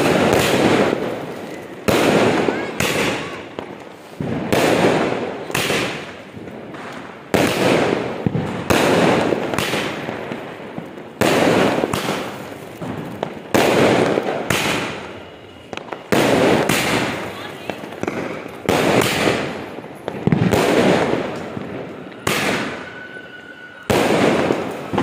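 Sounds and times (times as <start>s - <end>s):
fireworks bursting with echo: 0.0s - 25.0s.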